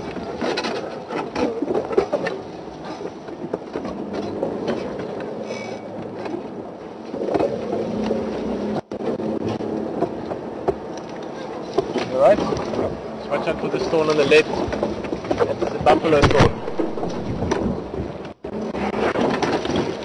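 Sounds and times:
rattles of jolting vehicle body: 0:11.7 - 0:20.0.

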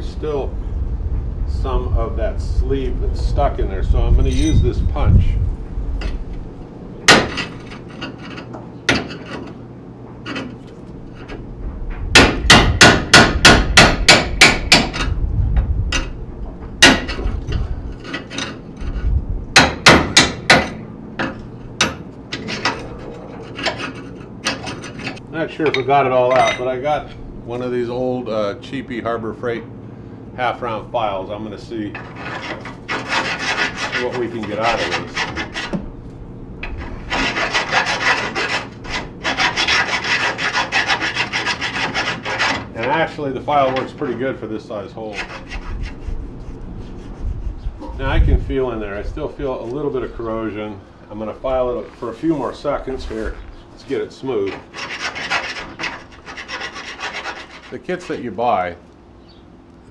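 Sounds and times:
hammer striking steel punch: 0:07.1 - 0:07.5, 0:12.1 - 0:15.0, 0:19.6 - 0:22.0
metal file rasping on metal: 0:16.8 - 0:25.2, 0:31.9 - 0:35.8, 0:36.6 - 0:44.2, 0:45.0 - 0:48.7, 0:54.3 - 0:58.3.

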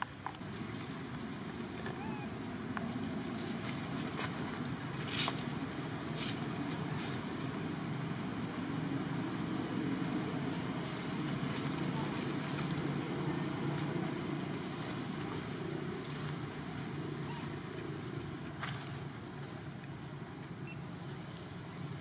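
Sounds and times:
outdoor background noise: 0:00.0 - 0:22.0
murmur of distant voices: 0:03.6 - 0:19.8.

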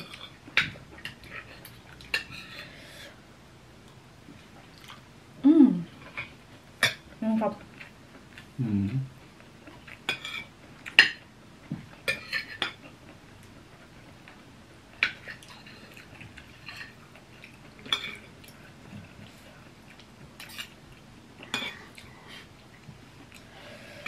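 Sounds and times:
cutlery clinking on plates: 0:20.4 - 0:20.8.

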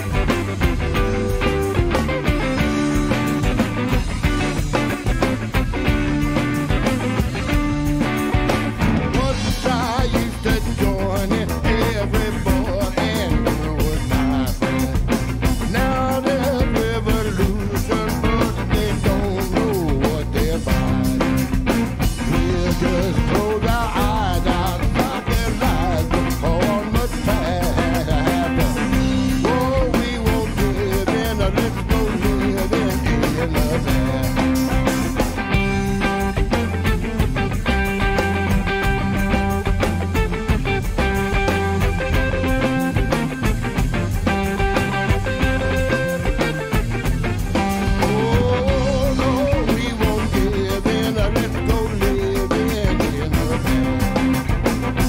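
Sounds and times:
drum kit: 0:00.0 - 0:55.0
electric bass: 0:00.0 - 0:55.0
electric guitar: 0:00.0 - 0:55.0.

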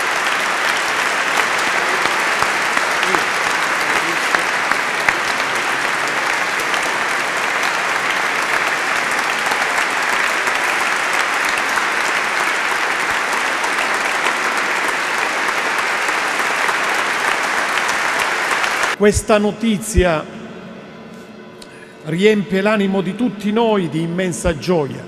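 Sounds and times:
congregation applauding: 0:00.0 - 0:19.0.

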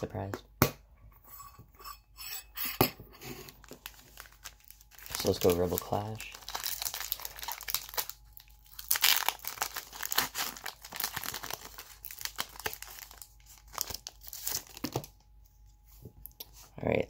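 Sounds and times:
foil wrapper tearing and crinkling: 0:03.5 - 0:15.1.

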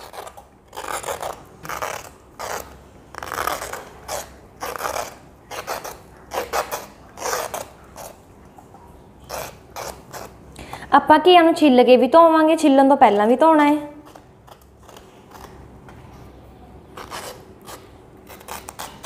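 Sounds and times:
vegetable peeler scraping: 0:00.0 - 0:08.2, 0:09.2 - 0:10.4, 0:13.9 - 0:16.3, 0:16.9 - 0:19.0.

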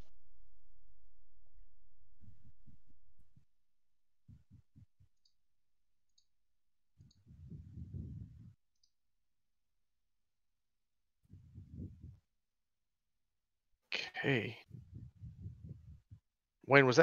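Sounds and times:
low rumble: 0:00.0 - 0:03.6, 0:04.2 - 0:05.1, 0:07.0 - 0:08.6, 0:11.3 - 0:12.2, 0:14.6 - 0:16.2
short low thumps: 0:04.2 - 0:05.2, 0:07.0 - 0:08.6, 0:11.3 - 0:12.2, 0:14.6 - 0:16.2.

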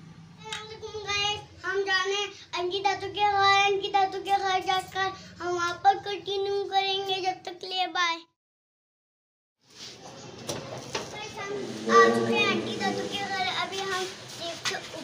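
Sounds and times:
boy singing high notes: 0:11.6 - 0:14.1.

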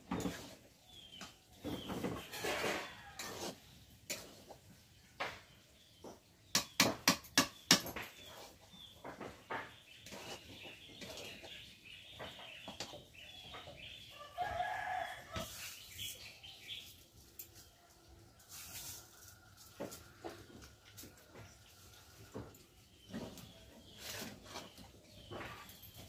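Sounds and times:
spatula scraping iron pan: 0:00.0 - 0:04.8, 0:09.6 - 0:12.8.

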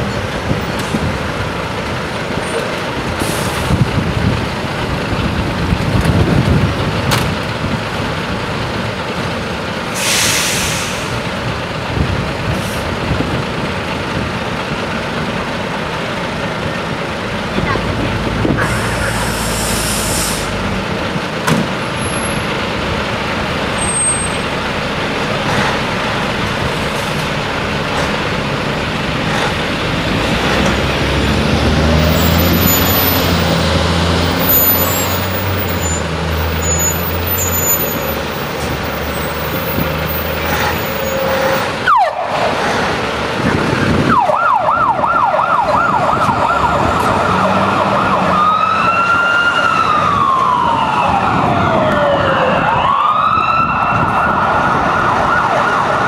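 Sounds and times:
diesel fire truck engines: 0:00.0 - 0:56.0
fire engine siren yelping: 0:30.8 - 0:56.0.

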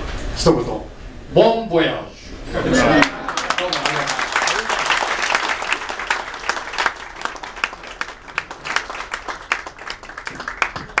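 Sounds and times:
room of people applauding: 0:02.8 - 0:11.0.

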